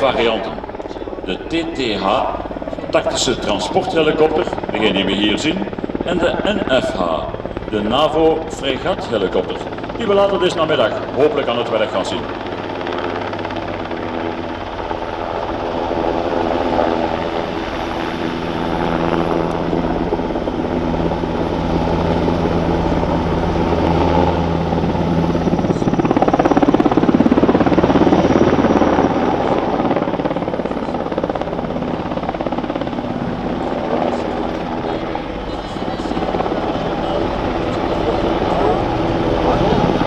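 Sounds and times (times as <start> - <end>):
helicopter flying past: 0.0 - 40.0
rotor blades pulsing: 0.0 - 40.0.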